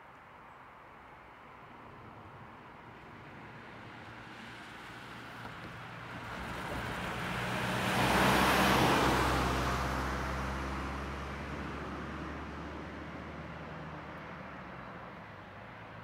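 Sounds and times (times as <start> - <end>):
vehicle driving past: 6.2 - 14.1.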